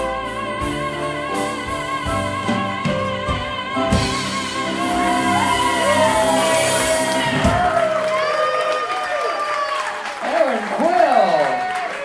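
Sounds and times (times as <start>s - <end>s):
woman singing into a microphone: 0.0s - 7.8s
live band with upright bass: 0.0s - 8.6s.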